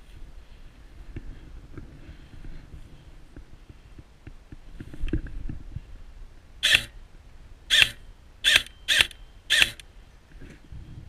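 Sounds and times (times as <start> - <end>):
airsoft gun shots: 7.7 - 9.8.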